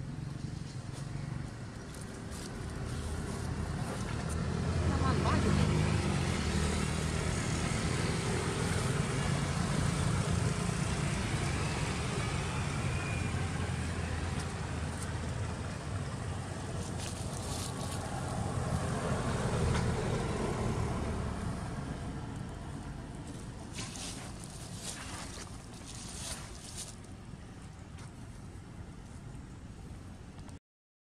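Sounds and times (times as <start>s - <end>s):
vehicle engine rumble: 0.0s - 30.6s.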